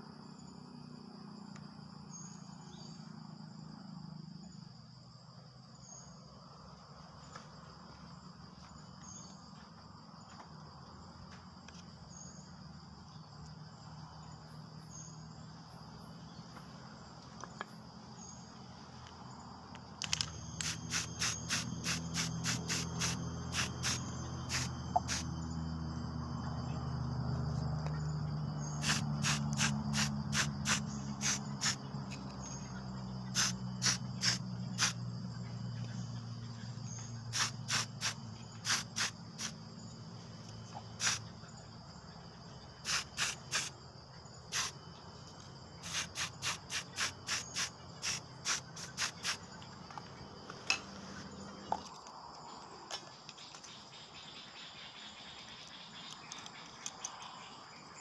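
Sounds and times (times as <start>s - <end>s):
high insect drone: 0.0s - 58.0s
spray can hissing bursts: 20.6s - 25.2s, 28.8s - 31.8s, 33.3s - 35.0s, 37.3s - 39.6s, 41.0s - 41.2s, 42.8s - 43.7s, 44.5s - 44.8s, 45.8s - 49.4s.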